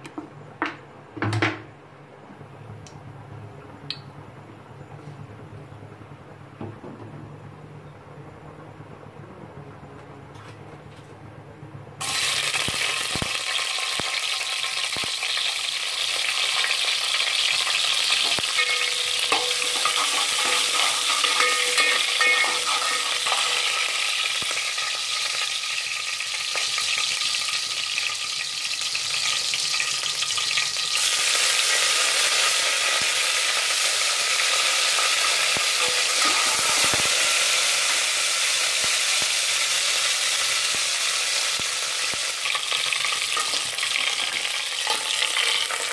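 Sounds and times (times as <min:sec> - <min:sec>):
spices sizzling in hot oil: 0:12.0 - 0:45.9
spoon stirring in pot: 0:18.2 - 0:23.7.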